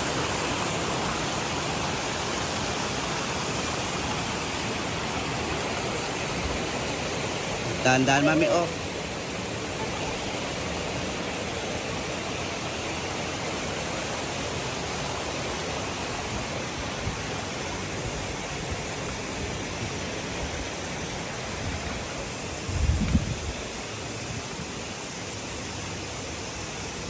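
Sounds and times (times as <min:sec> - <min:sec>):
waterfall rushing: 0:00.0 - 0:27.0.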